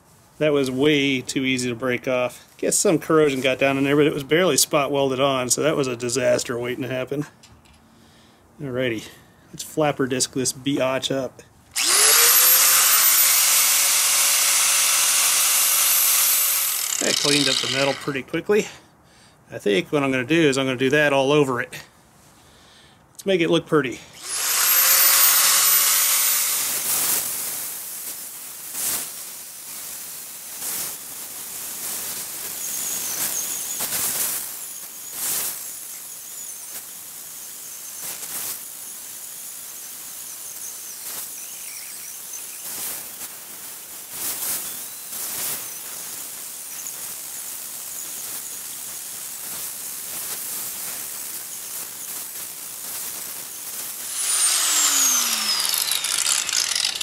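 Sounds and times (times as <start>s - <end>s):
angle grinder whining: 11.8s - 18.3s, 24.1s - 27.2s, 32.5s - 43.2s, 44.4s - 45.9s, 53.9s - 57.0s.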